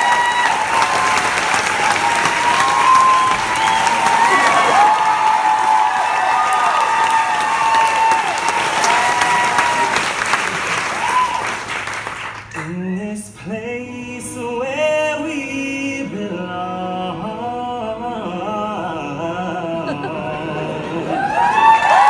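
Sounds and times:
audience clapping and cheering: 0:00.0 - 0:12.9, 0:21.0 - 0:22.0.

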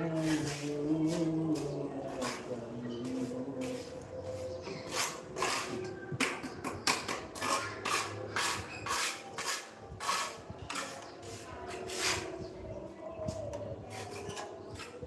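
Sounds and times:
hand tool scraping stone: 0:04.9 - 0:05.8, 0:07.4 - 0:11.1.

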